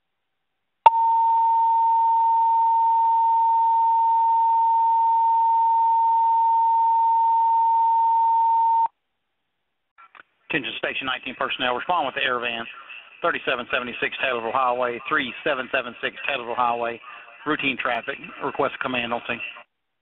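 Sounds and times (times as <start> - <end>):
steady high paging tone: 0.9 - 8.9.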